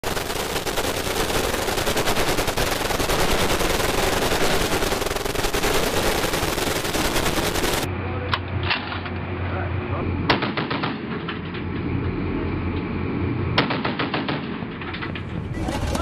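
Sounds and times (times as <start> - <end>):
machine guns firing bursts: 0.0 - 7.9.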